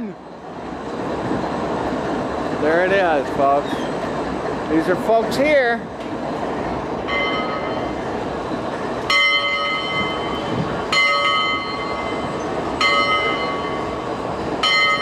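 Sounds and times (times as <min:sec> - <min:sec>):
locomotive bell ringing: 0:07.0 - 0:08.2, 0:09.0 - 0:15.0.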